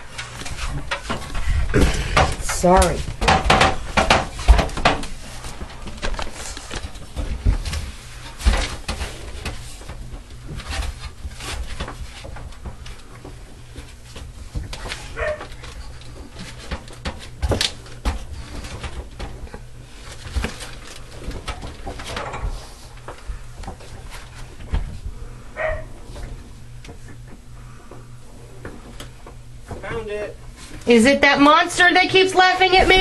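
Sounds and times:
knocks and thumps on metal ladder: 0:00.3 - 0:25.0.

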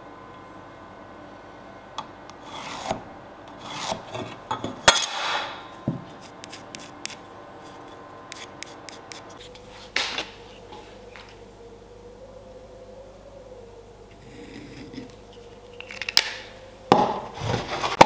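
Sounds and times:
pencil scratching on wood: 0:06.0 - 0:09.6.

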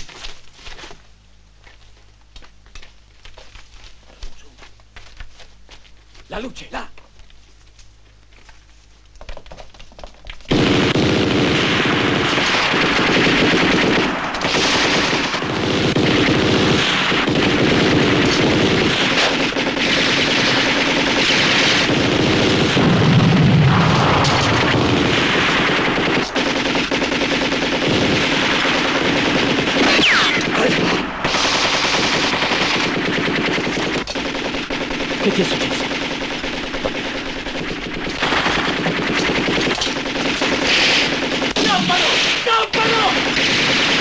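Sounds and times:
automatic gunfire: 0:10.5 - 0:44.0.

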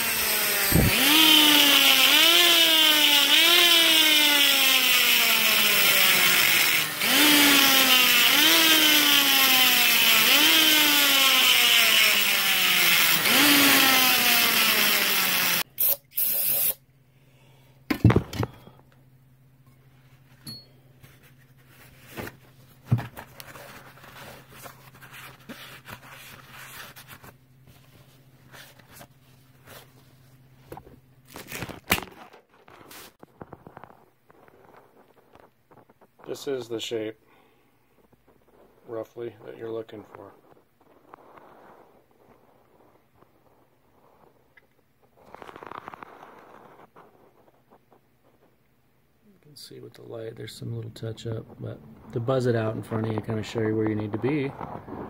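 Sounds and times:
die grinder cutting metal: 0:00.0 - 0:15.6
faint hum: 0:16.7 - 0:31.8.

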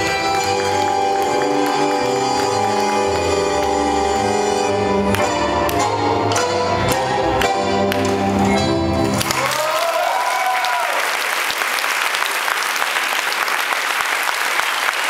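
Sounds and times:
tango music: 0:00.0 - 0:09.7
audience applause: 0:07.9 - 0:15.0
person whooping: 0:09.4 - 0:11.1.

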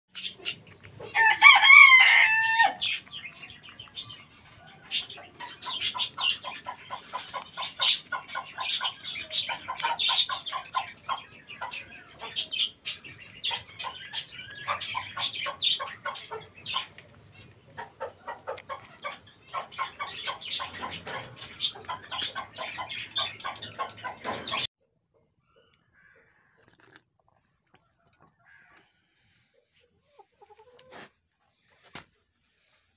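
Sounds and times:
chickens clucking: 0:00.1 - 0:26.3, 0:27.4 - 0:32.2
rooster crowing: 0:01.2 - 0:02.8.

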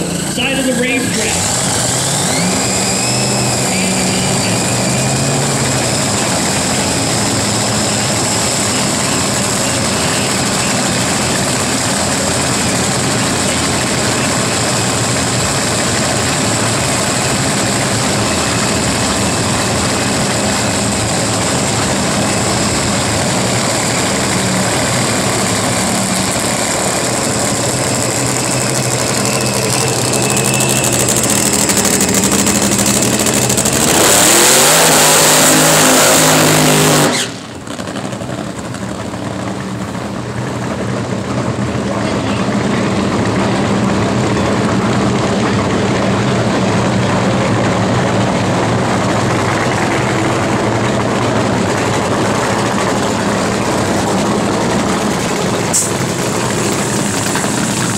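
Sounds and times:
race car engine idling: 0:00.0 - 0:57.9.

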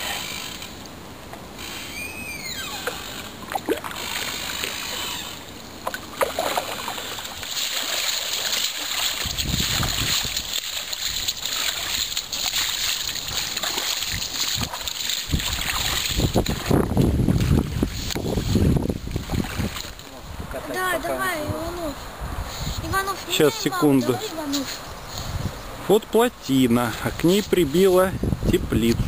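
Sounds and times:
water splashing and sloshing: 0:00.0 - 0:22.2.

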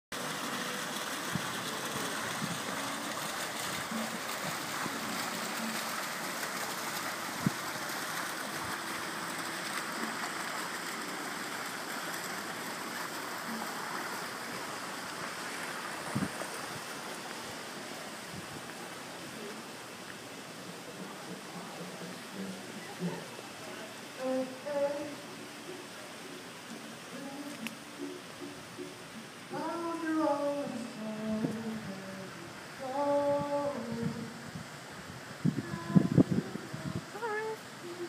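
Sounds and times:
fountain water splashing into basin: 0:00.1 - 0:29.6.

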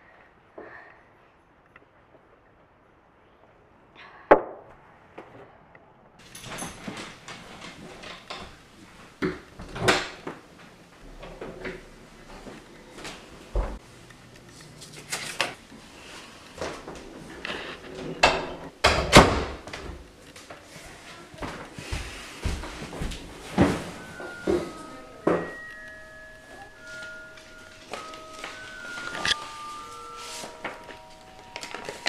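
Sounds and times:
paper envelope rustling: 0:14.4 - 0:15.6, 0:26.7 - 0:32.0
footsteps: 0:19.7 - 0:32.0.

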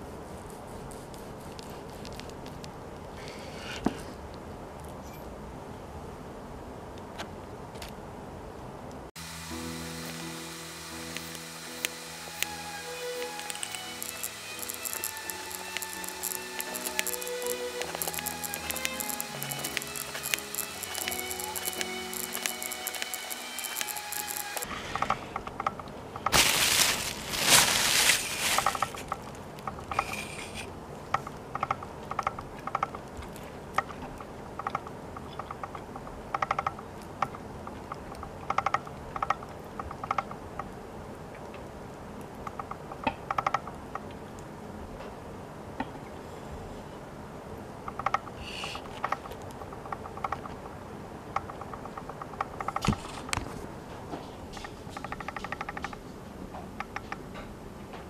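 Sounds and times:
loud rustle: 0:26.3 - 0:29.2.

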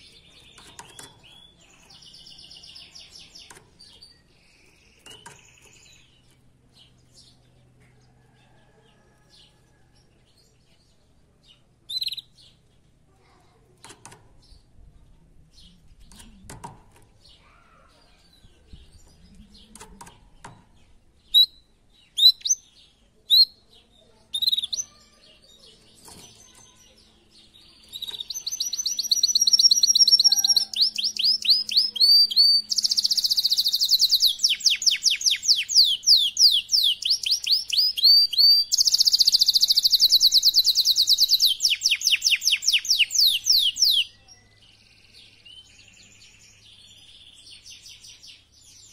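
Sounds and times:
canary singing trills: 0:10.4 - 0:12.7, 0:17.2 - 0:48.9.

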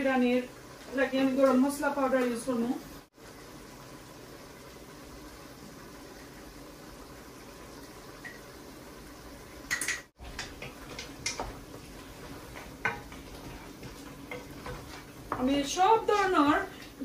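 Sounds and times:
faint simmering: 0:00.0 - 0:17.0
spoon scraping and knocking pot: 0:09.7 - 0:15.5.

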